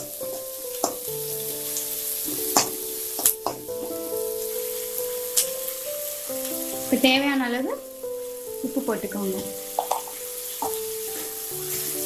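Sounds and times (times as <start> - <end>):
onions sizzling in hot oil: 0.0 - 12.0
ladle knocking against pan: 9.8 - 10.8.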